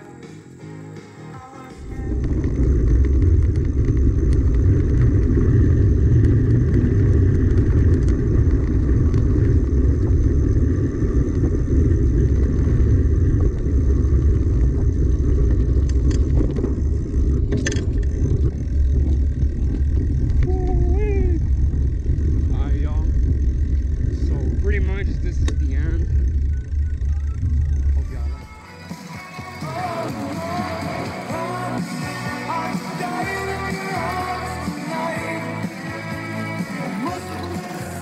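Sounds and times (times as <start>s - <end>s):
bike tyre noise on dirt: 1.3s - 38.0s
wind buffeting: 1.8s - 28.6s.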